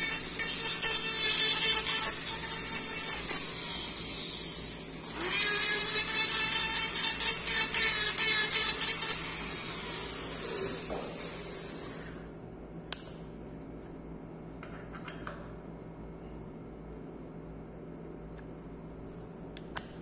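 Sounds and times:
dental micromotor grinding acrylic: 0.0s - 12.2s.

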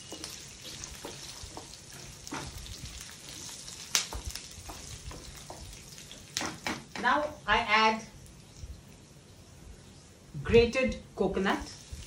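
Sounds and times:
wooden spatula tapping pan: 0.0s - 2.7s, 4.0s - 5.8s
oil sizzling: 0.0s - 10.4s, 11.3s - 12.0s.

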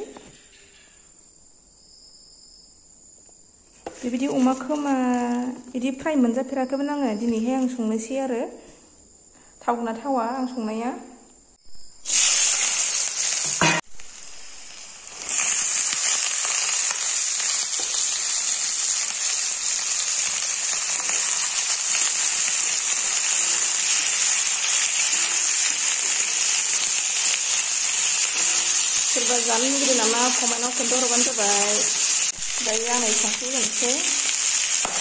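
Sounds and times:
food sizzling in hot oil: 12.0s - 35.0s.

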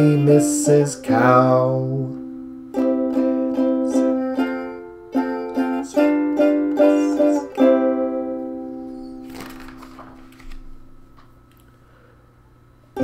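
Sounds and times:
ukulele strumming chords: 0.0s - 9.5s.

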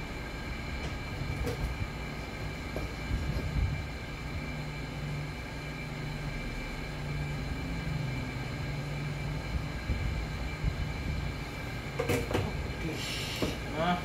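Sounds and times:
hot-air gun blowing: 12.8s - 13.8s.

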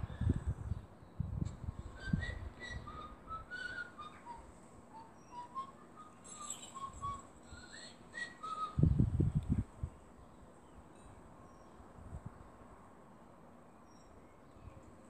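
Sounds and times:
person whistling a tune: 1.9s - 9.0s.

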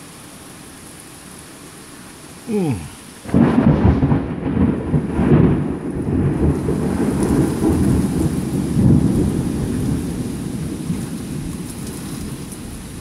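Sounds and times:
heavy rain: 0.0s - 13.0s
rolling thunder: 3.2s - 13.0s.

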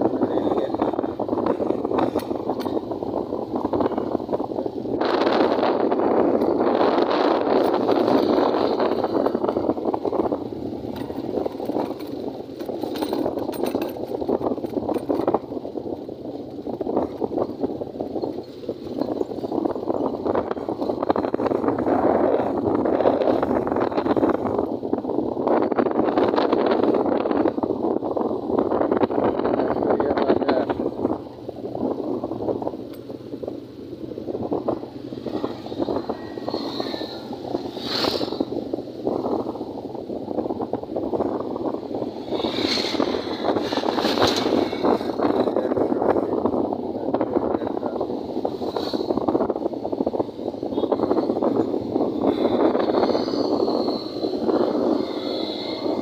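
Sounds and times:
vehicle road rumble: 0.0s - 56.0s
wind buffeting microphone: 0.0s - 56.0s
rattles and clinks: 7.6s - 15.8s, 16.4s - 21.5s, 32.8s - 33.2s.

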